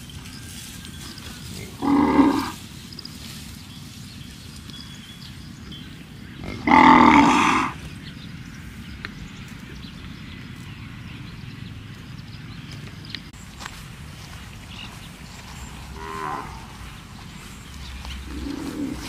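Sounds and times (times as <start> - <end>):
cows mooing: 1.0 - 2.6, 6.4 - 7.9, 15.5 - 19.0.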